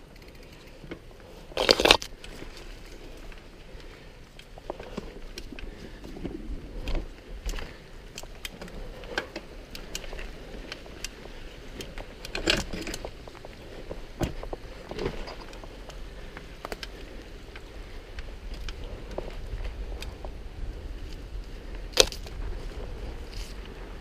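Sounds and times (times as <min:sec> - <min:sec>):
bike clicks and knocks: 0:00.0 - 0:24.0
tyre and wind noise: 0:00.0 - 0:24.0.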